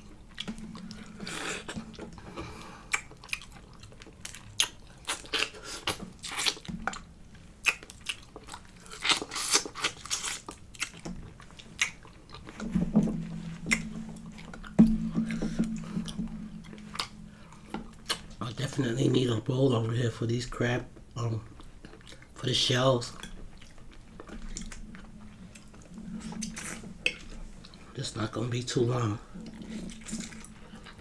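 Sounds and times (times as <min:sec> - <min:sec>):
chewing: 0:00.0 - 0:18.8, 0:21.0 - 0:28.0, 0:29.0 - 0:31.0
low hum: 0:12.4 - 0:21.6.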